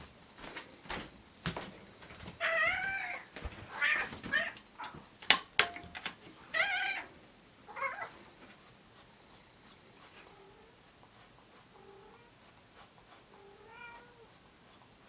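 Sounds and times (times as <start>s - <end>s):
cat meowing: 13.4s - 14.3s.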